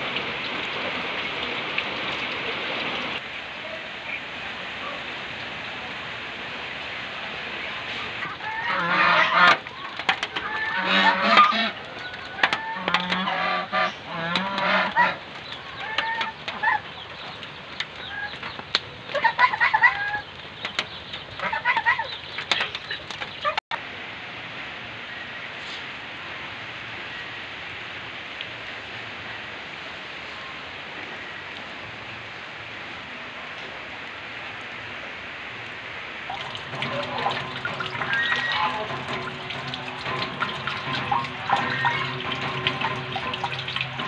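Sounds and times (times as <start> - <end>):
rain hissing: 0.0 - 23.0, 23.8 - 44.0
chickens clucking: 7.9 - 23.6, 36.3 - 44.0.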